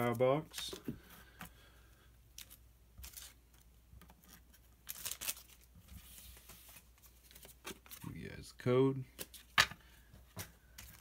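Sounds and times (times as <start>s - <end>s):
foil wrapper crinkling and tearing: 4.8s - 5.7s.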